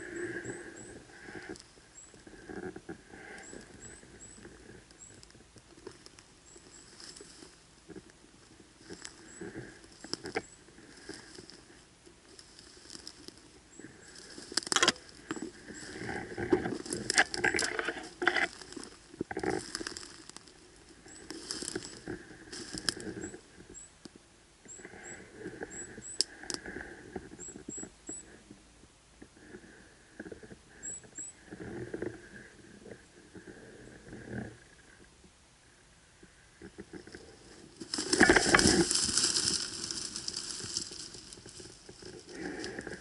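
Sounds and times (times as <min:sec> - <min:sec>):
dry brush rustling and crackling: 0:00.0 - 0:24.2, 0:36.7 - 0:43.0
twigs snapping: 0:14.1 - 0:20.5, 0:21.3 - 0:23.1, 0:37.8 - 0:43.0.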